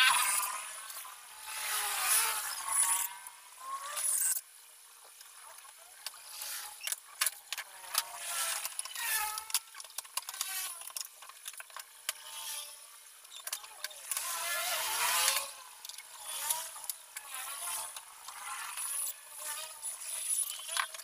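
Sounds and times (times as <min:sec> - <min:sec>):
screws and metal parts clinking: 0:06.3 - 0:14.3, 0:15.2 - 0:21.0.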